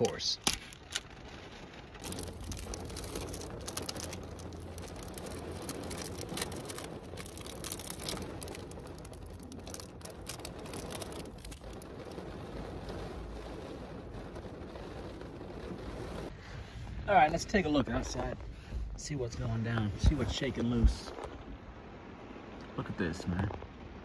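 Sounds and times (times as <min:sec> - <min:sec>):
plastic wrapper crinkling: 0:00.0 - 0:13.4
rain on car roof: 0:00.0 - 0:24.0.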